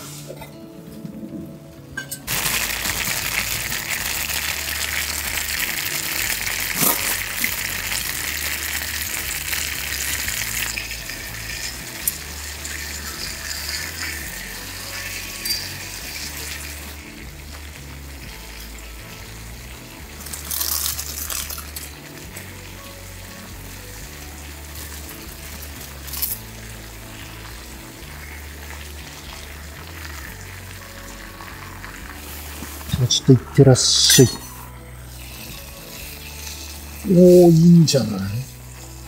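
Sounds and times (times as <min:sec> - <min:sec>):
background music: 0:00.0 - 0:39.0
bean sprouts sizzling in a frying pan: 0:02.3 - 0:33.6, 0:34.5 - 0:39.0.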